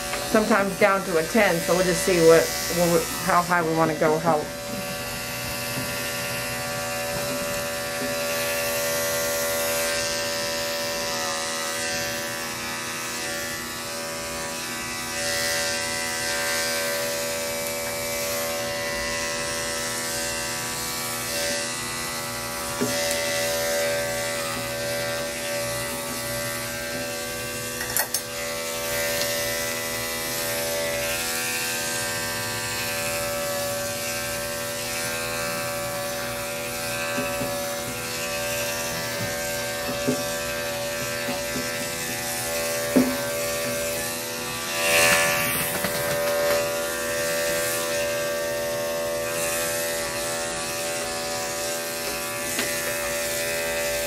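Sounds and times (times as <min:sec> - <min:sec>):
electric clippers cutting fur: 0:00.0 - 0:54.0.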